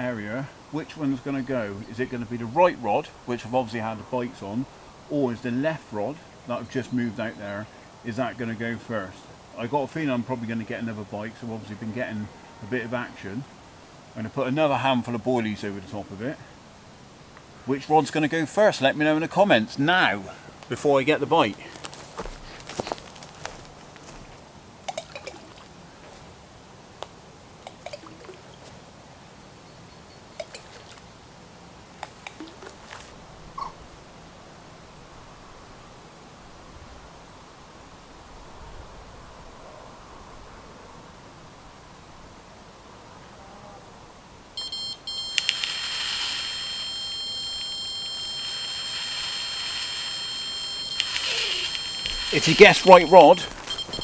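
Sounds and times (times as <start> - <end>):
faint steady background noise: 0.0 - 54.0
water drips and plops: 24.9 - 25.7, 27.6 - 28.6, 30.4 - 31.0, 32.0 - 32.9
electronic bite alarm beeping: 44.6 - 54.0
hiss: 45.4 - 46.7, 48.4 - 50.3.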